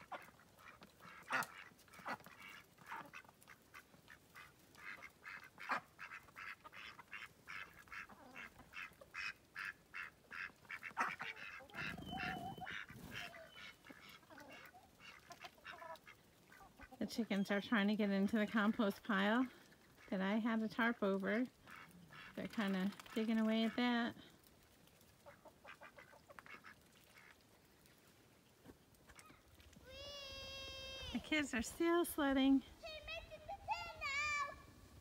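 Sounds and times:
ducks quacking: 0.0s - 17.0s, 19.7s - 24.2s, 25.1s - 27.5s
chickens: 10.0s - 17.4s, 24.8s - 28.0s.

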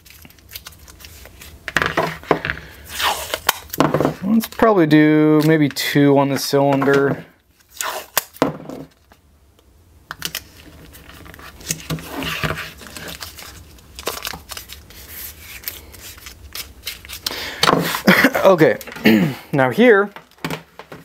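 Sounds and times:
tape tearing and crinkling: 0.0s - 2.3s, 2.9s - 5.7s, 6.9s - 9.2s, 10.1s - 18.1s.

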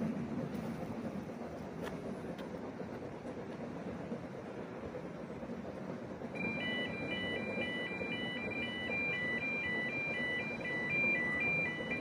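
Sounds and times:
low rumbling noise: 0.0s - 12.0s
level crossing warning alarm: 6.3s - 12.0s.

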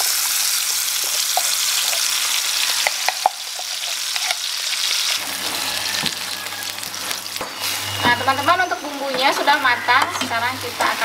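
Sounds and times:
spice paste sizzling in oil: 0.0s - 8.0s.

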